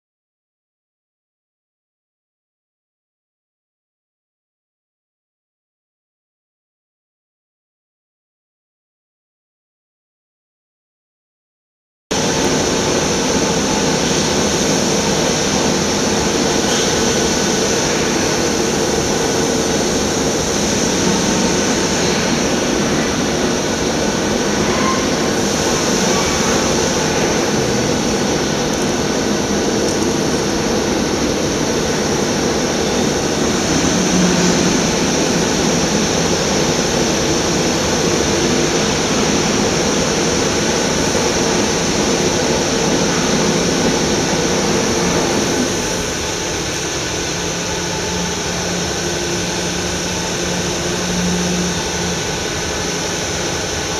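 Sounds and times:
industrial machinery humming: 12.1 - 53.9.

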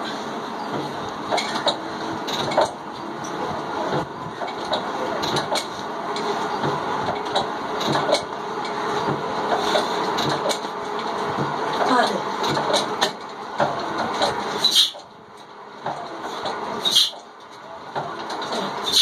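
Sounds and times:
rushing mechanical noise: 0.0 - 19.0
metallic clicks and clanks: 1.3 - 3.4.

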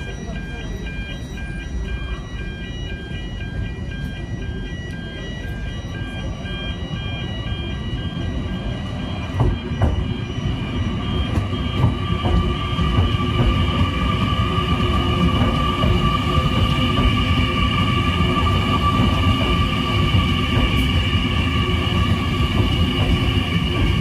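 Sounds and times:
level crossing bells ringing: 0.0 - 24.0
train rumble and hum: 0.0 - 24.0
train wheels clicking over rails: 8.5 - 24.0.

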